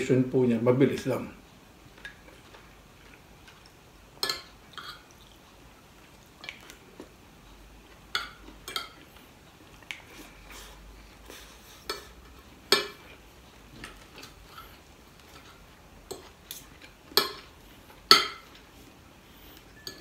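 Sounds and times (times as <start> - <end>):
cutlery clinking on a plate: 4.2 - 5.1, 11.8 - 13.0, 17.2 - 17.5, 18.1 - 18.6, 19.8 - 20.0.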